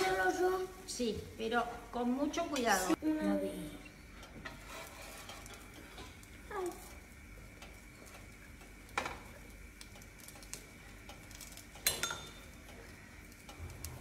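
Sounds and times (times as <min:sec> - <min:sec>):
metal spatula clacking on pan: 0:11.8 - 0:12.5.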